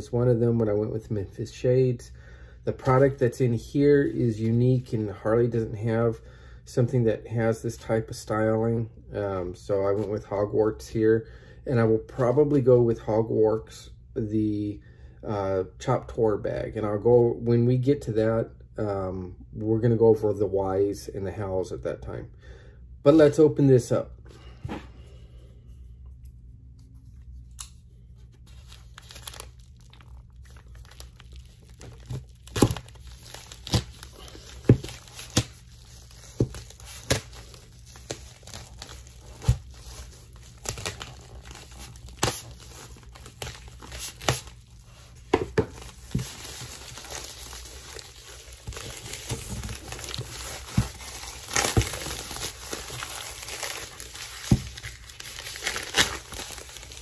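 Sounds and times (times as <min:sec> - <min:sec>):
plastic crinkling and tearing: 0:27.4 - 0:57.0.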